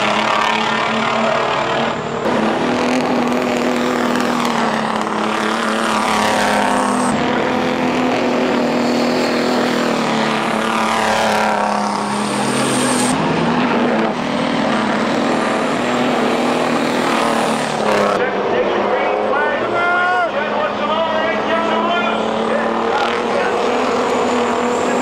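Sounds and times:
diesel truck engines passing: 0.0 - 25.0.

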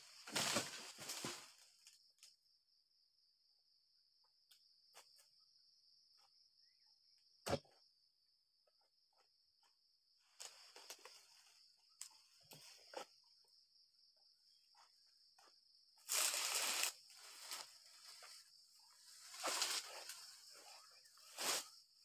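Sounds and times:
palm fronds crashing: 0.0 - 1.6, 16.1 - 17.7, 19.3 - 20.6
insect trill: 0.0 - 22.0.

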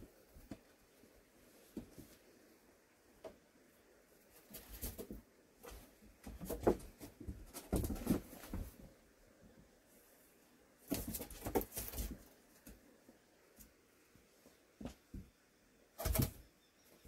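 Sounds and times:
kittens scuffling on floor: 4.2 - 9.0, 10.8 - 12.8.

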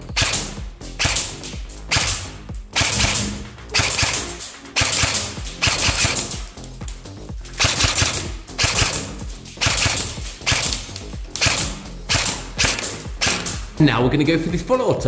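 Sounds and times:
airsoft rifle single shots: 7.6 - 13.6.

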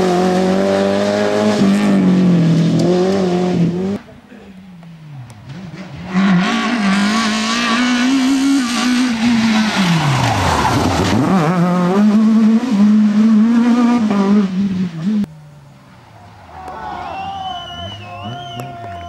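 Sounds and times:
rally car engine revving: 0.0 - 4.2, 4.8 - 15.4.

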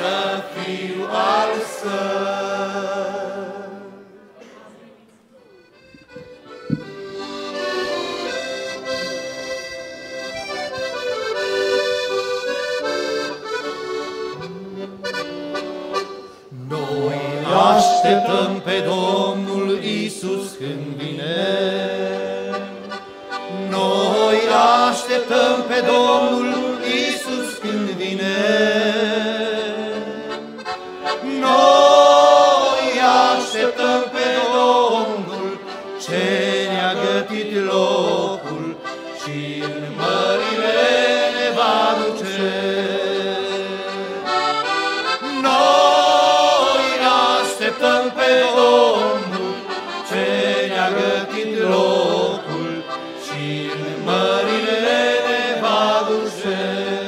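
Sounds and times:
accordions playing: 0.0 - 4.0, 5.5 - 57.0
men singing a hymn: 0.0 - 4.1, 16.5 - 57.0.

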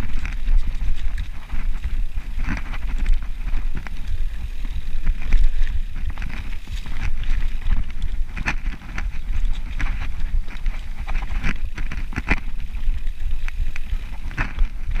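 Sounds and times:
bike clacking and rattling: 0.0 - 15.0
wind buffeting microphone: 0.0 - 15.0.

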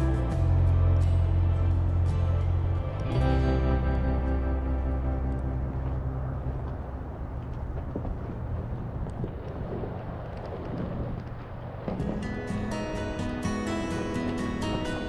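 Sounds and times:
music with light percussion: 0.0 - 6.8, 12.0 - 15.0
car engine and road noise: 0.0 - 15.0.

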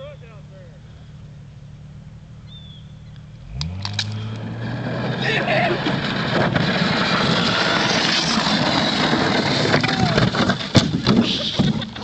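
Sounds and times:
sled crashing through dry brush: 3.4 - 12.0
sled scraping over ice: 4.1 - 12.0.

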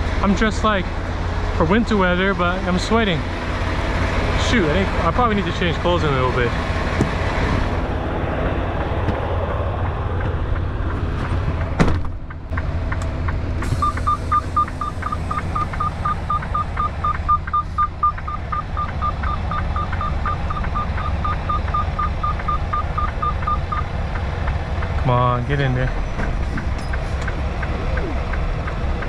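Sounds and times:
diesel truck engine idling: 0.0 - 29.0
truck door slamming: 11.8 - 12.2
reverse warning beeper: 13.7 - 23.9.

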